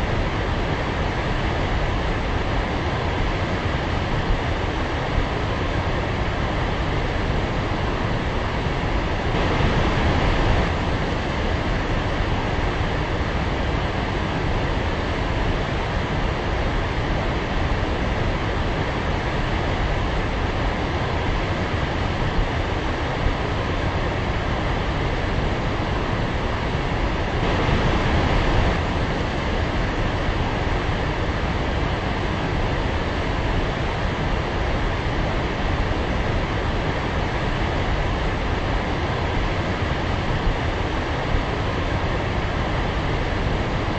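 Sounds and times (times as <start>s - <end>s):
waterfall roaring: 0.1s - 43.9s
waterfall rushing: 27.4s - 31.3s.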